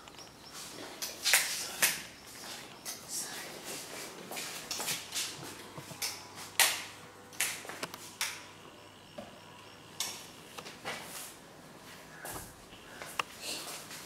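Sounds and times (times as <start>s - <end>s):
footsteps on tiled floor: 3.6s - 6.0s.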